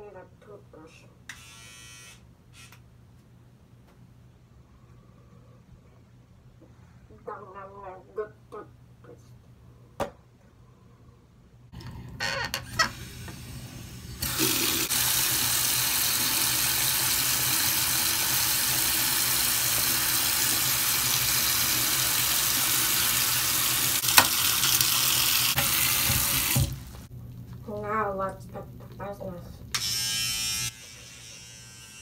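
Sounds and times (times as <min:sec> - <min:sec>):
water running into basin: 0:14.2 - 0:27.1.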